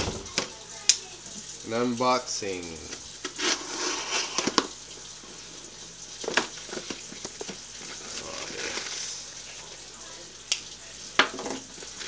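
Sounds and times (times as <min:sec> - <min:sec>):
cardboard crinkling and rustling: 0:06.2 - 0:09.1.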